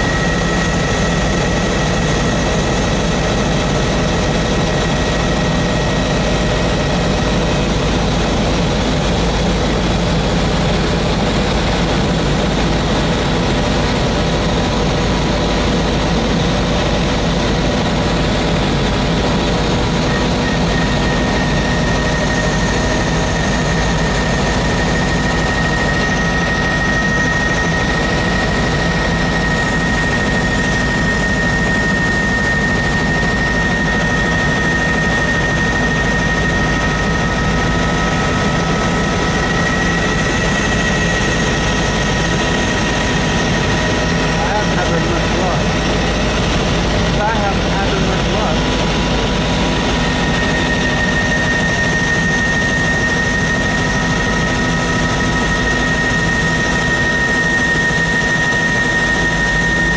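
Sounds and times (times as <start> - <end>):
helicopter engine and rotor drone: 0.0 - 59.9
high whine: 0.0 - 59.9.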